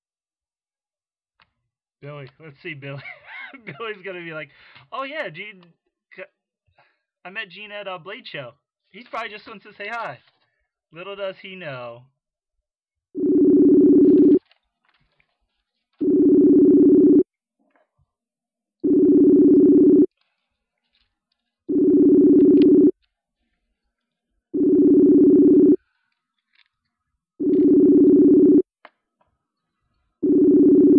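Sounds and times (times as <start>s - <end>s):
two-tone ringback tone: 13.2s - 14.4s, 16.0s - 17.2s, 18.8s - 20.1s, 21.7s - 22.9s, 24.6s - 25.8s, 27.4s - 28.6s, 30.2s - 30.9s.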